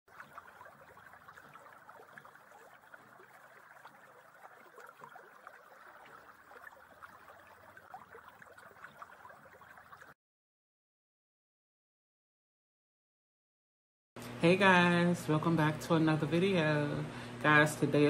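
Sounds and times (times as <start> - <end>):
stream babbling and trickling: 0.0 - 10.2.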